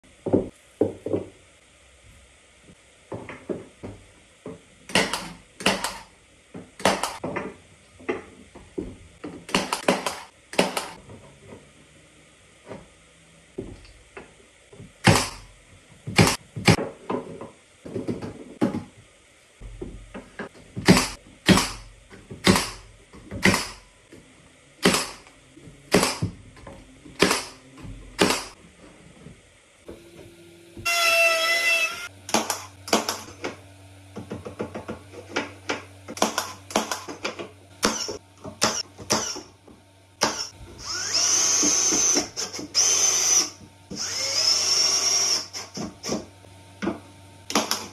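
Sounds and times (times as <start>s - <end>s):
nail gun firing into wood: 4.9s - 6.0s, 9.5s - 11.0s, 15.0s - 15.4s, 20.8s - 21.8s, 22.4s - 22.8s, 23.4s - 23.8s, 24.8s - 25.2s, 25.9s - 26.3s, 27.2s - 27.6s, 28.2s - 28.5s.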